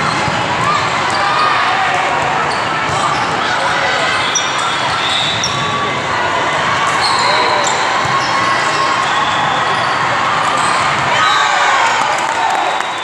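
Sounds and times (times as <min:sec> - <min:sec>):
hubbub of voices: 0:00.0 - 0:13.0
sneakers squeaking on court: 0:02.4 - 0:05.7, 0:06.9 - 0:09.0.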